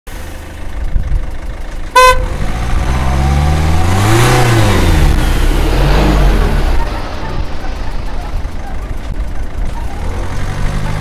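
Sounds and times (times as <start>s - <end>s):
street traffic rumble: 0.1s - 11.0s
car horn beep: 1.9s - 2.4s.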